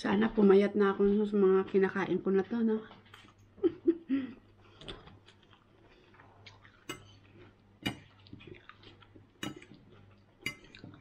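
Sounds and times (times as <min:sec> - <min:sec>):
metal fork clinking on ceramic plate: 0:06.9 - 0:07.2, 0:07.8 - 0:08.1, 0:09.4 - 0:09.8, 0:10.4 - 0:10.9.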